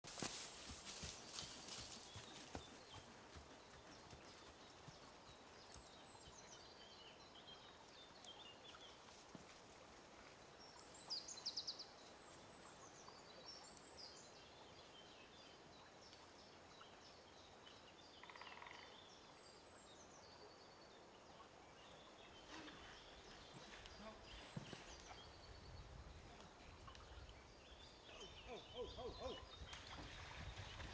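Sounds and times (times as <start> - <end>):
birdsong chirps: 0.2 - 9.4, 10.5 - 30.9.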